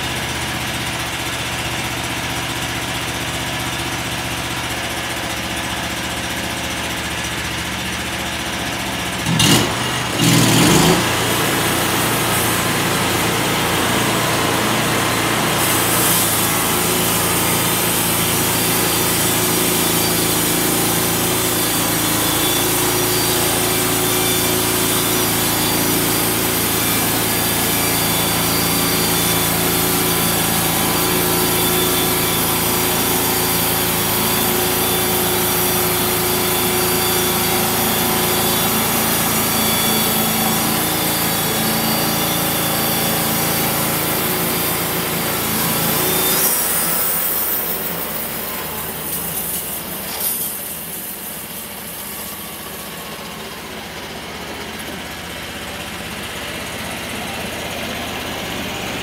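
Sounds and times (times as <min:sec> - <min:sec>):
petrol engine running under load: 0:00.0 - 0:59.0
band saw blade rasping through wood: 0:09.3 - 0:51.1.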